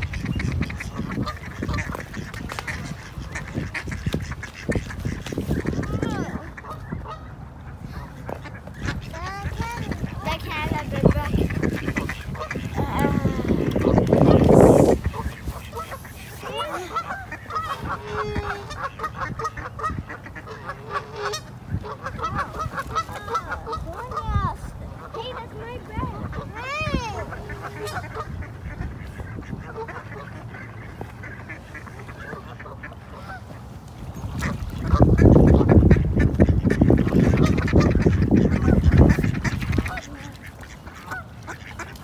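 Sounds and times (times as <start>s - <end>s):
ducks quacking: 0.0s - 42.0s.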